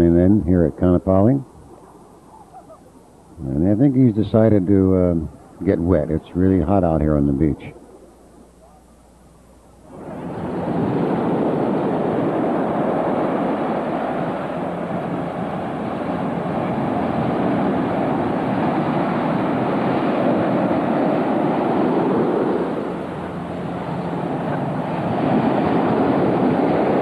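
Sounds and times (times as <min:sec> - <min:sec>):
ocean waves breaking on beach: 0:09.9 - 0:27.0.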